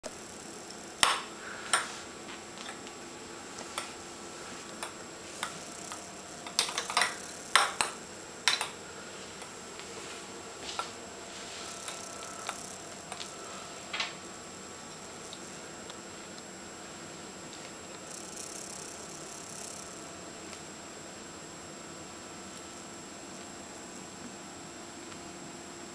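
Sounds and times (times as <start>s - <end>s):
toy clicking on hardwood floor: 4.8s - 8.8s.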